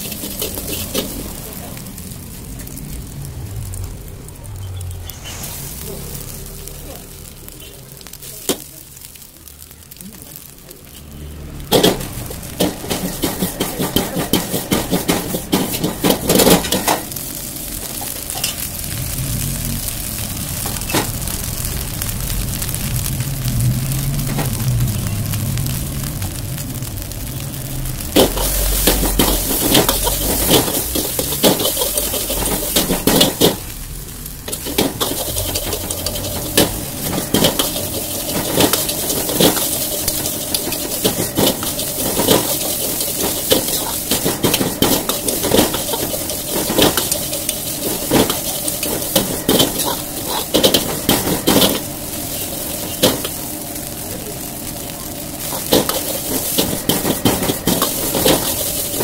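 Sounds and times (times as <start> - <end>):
ladle scraping and knocking a wok: 0.0 - 1.4, 11.7 - 17.2, 28.1 - 33.7, 34.5 - 53.6, 55.4 - 59.0
rice sizzling in a wok: 0.0 - 59.0.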